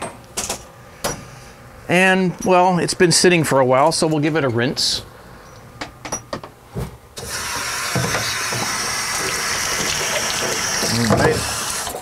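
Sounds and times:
tap water pouring into sink: 7.3 - 12.0.

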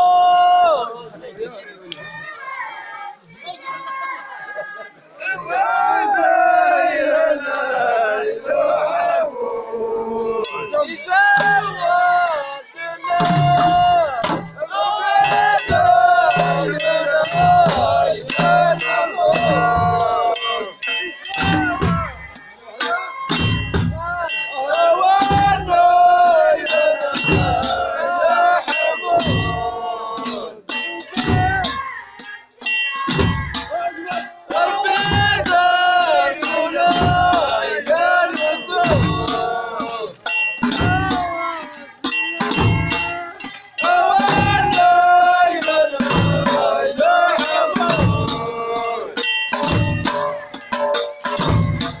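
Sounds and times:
sharp percussion clicks: 1.9 - 2.4, 10.4 - 52.0
men singing: 4.5 - 52.0
frame drum thumps: 13.2 - 14.6, 23.3 - 24.2.

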